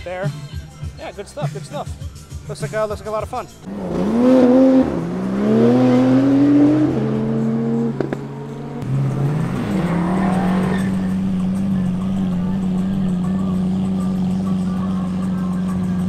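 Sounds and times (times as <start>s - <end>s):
car engine accelerating: 3.6s - 16.0s
sports car engine revving: 3.6s - 16.0s.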